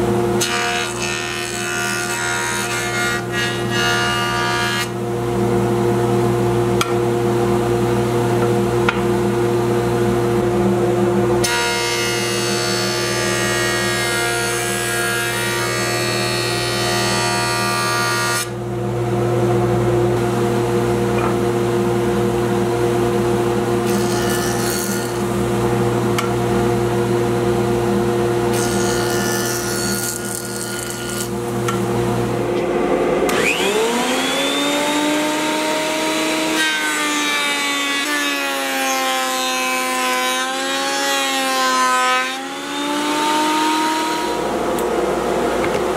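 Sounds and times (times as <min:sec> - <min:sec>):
cutterhead planing a board: 0:00.0 - 0:05.0, 0:11.4 - 0:18.6, 0:23.8 - 0:25.5, 0:28.5 - 0:31.8, 0:33.3 - 0:44.6
thickness planer motor whine: 0:00.1 - 0:06.2, 0:08.9 - 0:45.9.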